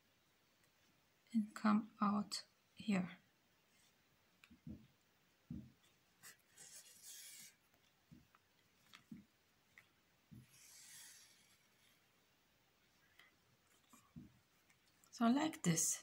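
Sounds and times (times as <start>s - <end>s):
yarn rustling through stitches: 3.4s - 15.8s
soft handling knocks: 4.4s - 6.9s, 8.0s - 10.7s, 13.1s - 15.0s.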